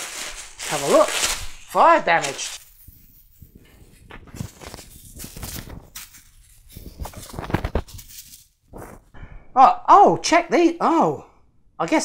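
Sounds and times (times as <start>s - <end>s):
bubble wrap crinkling: 0.0s - 9.1s.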